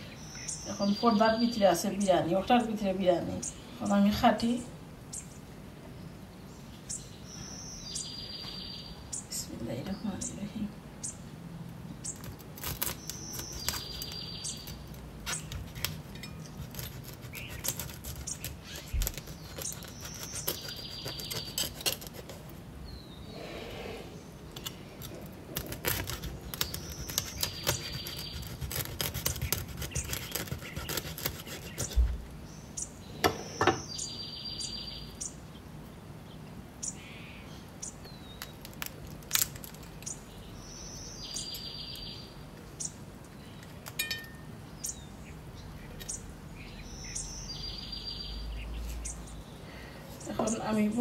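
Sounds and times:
bird chirps: 0:00.0 - 0:01.8, 0:06.4 - 0:10.4, 0:12.0 - 0:21.9, 0:26.4 - 0:35.6, 0:40.0 - 0:51.0.

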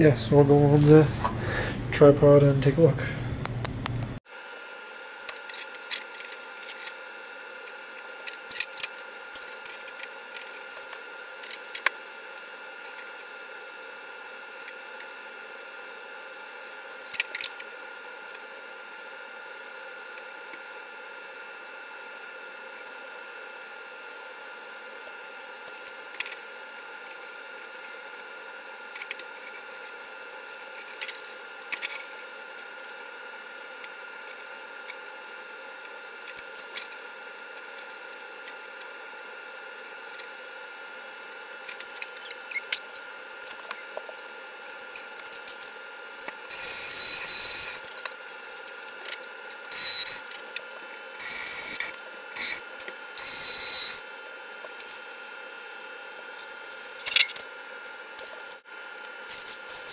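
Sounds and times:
cordless drill whining: 0:46.5 - 0:47.9, 0:49.7 - 0:50.3, 0:51.2 - 0:54.0.

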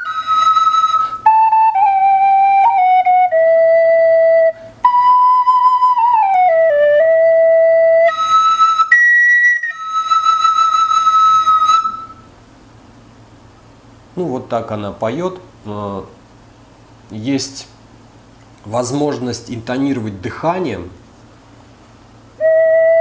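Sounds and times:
wooden flute melody: 0:00.0 - 0:12.3, 0:22.4 - 0:23.0.

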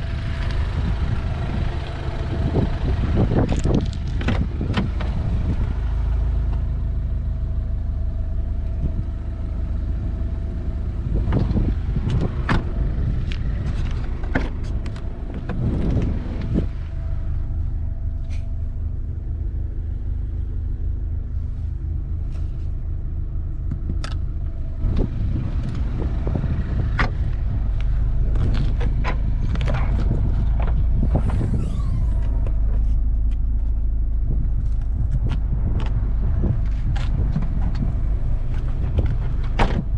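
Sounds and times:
car engine idling: 0:00.0 - 0:39.9
car doors and trim clicking: 0:38.9 - 0:39.9.

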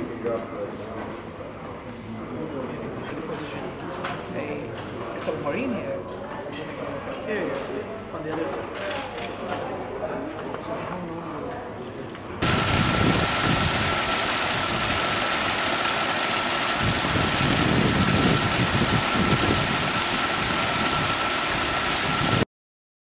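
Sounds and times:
water churning and boiling: 0:12.4 - 0:22.4.

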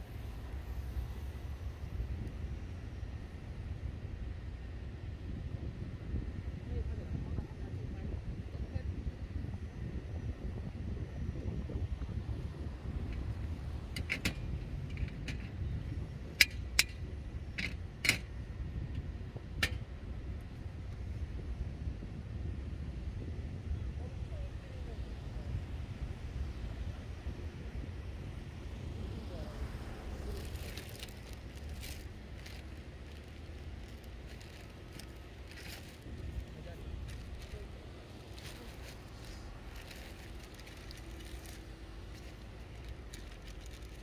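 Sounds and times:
wind rumble on microphone: 0:00.0 - 0:44.0
light clicks and crackles: 0:38.3 - 0:44.0.

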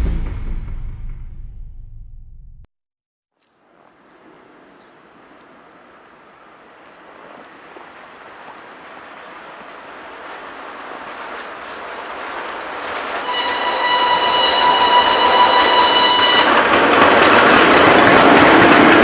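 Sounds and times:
train running on rails: 0:03.7 - 0:19.0
high-pitched locomotive horn: 0:13.2 - 0:16.6.

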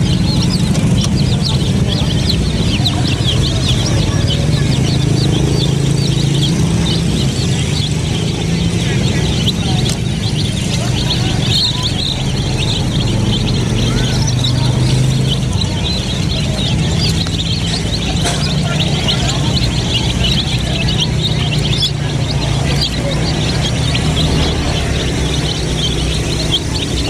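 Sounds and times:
chicks peeping: 0:00.0 - 0:27.0.

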